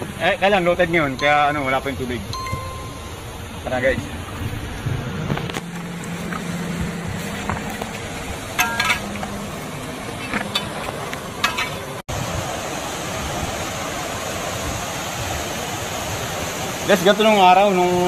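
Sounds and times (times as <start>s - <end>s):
flowing river water: 0.0s - 18.0s
steady hiss: 0.0s - 18.0s
footsteps on river stones: 5.3s - 12.0s
stones clinking together: 7.4s - 12.0s.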